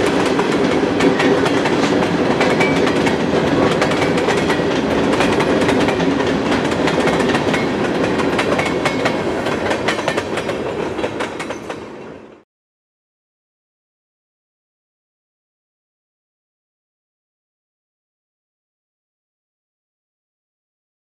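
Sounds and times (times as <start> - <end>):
freight train rumbling: 0.0 - 12.4
wheels clacking over rail joints: 0.0 - 12.4.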